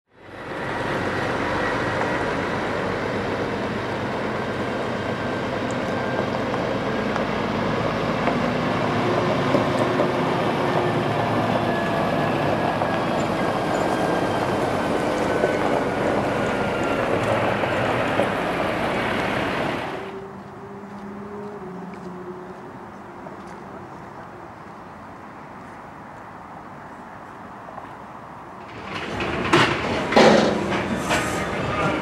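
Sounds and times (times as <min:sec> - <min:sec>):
diesel truck engines droning: 0:00.1 - 0:32.0.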